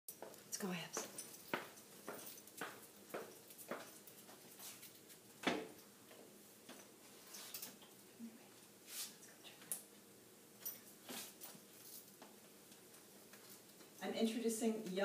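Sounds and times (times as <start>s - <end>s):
footsteps on tile floor: 0.1s - 7.6s.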